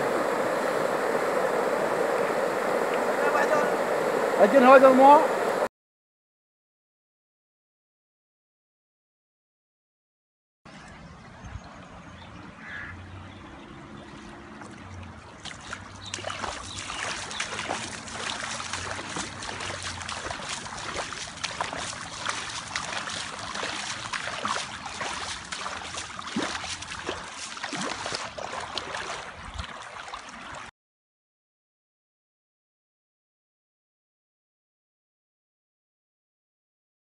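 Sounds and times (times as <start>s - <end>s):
flood water rushing and gurgling: 0.0s - 5.7s, 12.8s - 30.7s.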